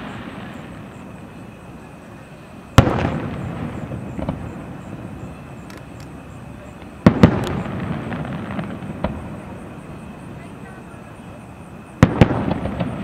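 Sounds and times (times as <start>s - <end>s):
fireworks shells bursting: 2.7s - 9.6s
small fireworks pops: 2.7s - 13.0s.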